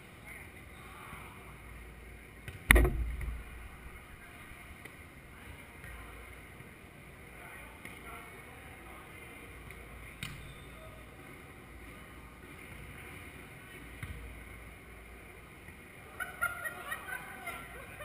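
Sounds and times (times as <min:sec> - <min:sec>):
low rumble of large hall: 0:00.0 - 0:18.0
volleyball hit slap: 0:02.4 - 0:03.5.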